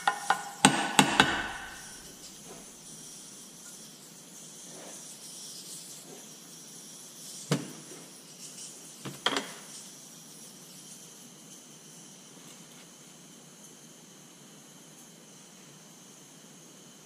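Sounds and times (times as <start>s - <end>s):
hammer tapping on metal: 0.0s - 2.0s.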